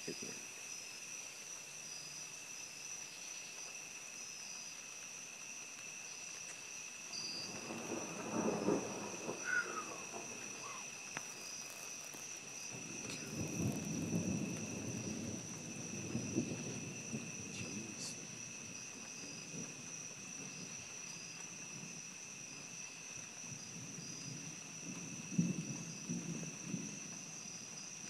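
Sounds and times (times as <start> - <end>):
night insects calling: 0.0 - 28.0
thunder rumbling: 7.4 - 21.0.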